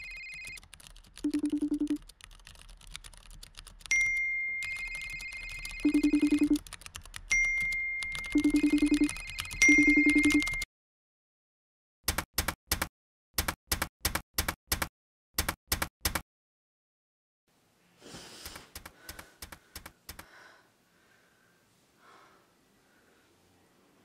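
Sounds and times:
typing key clicks: 0:00.3 - 0:10.6
faint room noise: 0:17.5 - 0:24.0.

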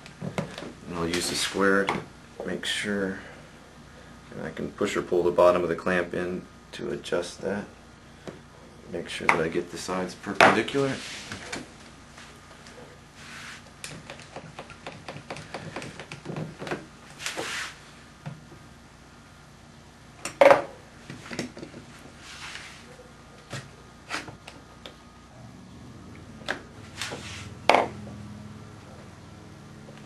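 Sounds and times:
short scraping sounds: 0:10.8 - 0:11.4, 0:17.2 - 0:17.8, 0:26.8 - 0:27.6.

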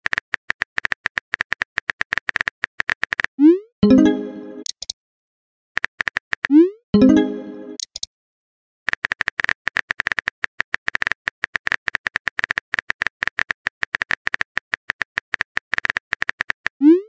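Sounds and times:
phone keyboard typing clicks: 0:04.6 - 0:05.0, 0:07.8 - 0:08.1, 0:08.9 - 0:16.7.

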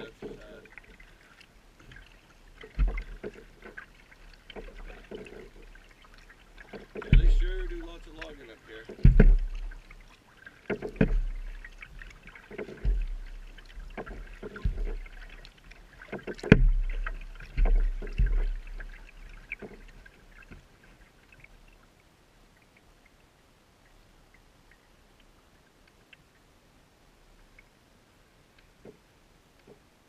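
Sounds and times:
paddle blades splashing: 0:00.0 - 0:30.0
low paddle thumps: 0:02.6 - 0:05.8, 0:06.6 - 0:20.6.

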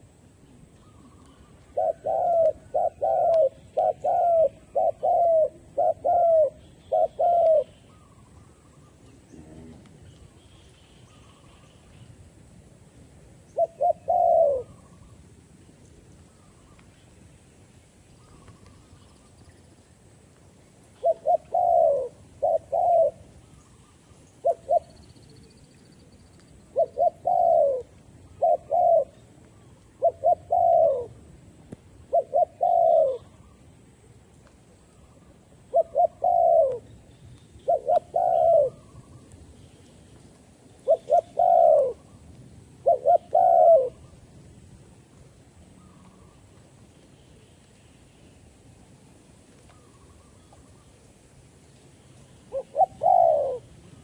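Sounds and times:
dove cooing: 0:00.1 - 0:10.4, 0:13.5 - 0:15.2, 0:20.9 - 0:25.6, 0:26.7 - 0:31.2, 0:32.0 - 0:33.6, 0:35.0 - 0:36.9, 0:37.6 - 0:39.3, 0:40.8 - 0:44.2, 0:52.5 - 0:54.0.

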